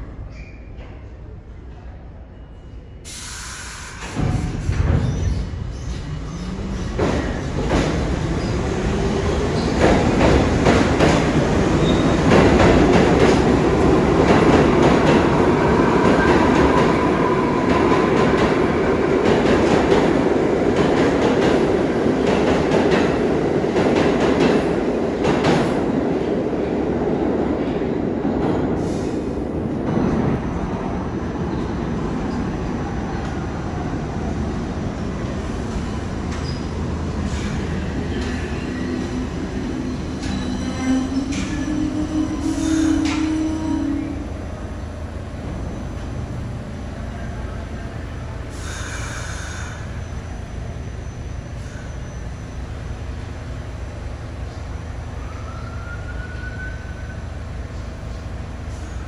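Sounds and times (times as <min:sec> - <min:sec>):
subway train passing at speed: 0:00.0 - 0:59.0
faint wheel squeal: 0:00.3 - 0:00.8.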